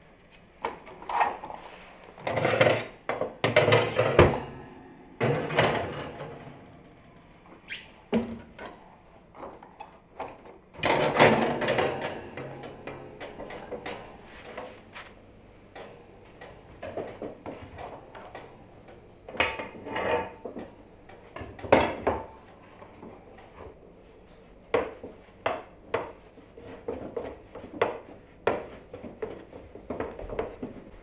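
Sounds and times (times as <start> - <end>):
metal trays and pans clattering: 2.2 - 6.6, 10.8 - 14.8
rolling pin on dough: 22.3 - 31.0.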